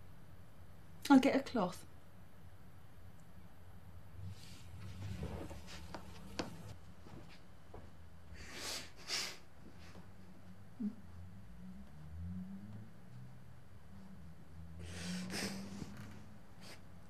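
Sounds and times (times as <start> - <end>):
faint low room hum: 0.0 - 17.0
soft rustling: 4.2 - 8.0.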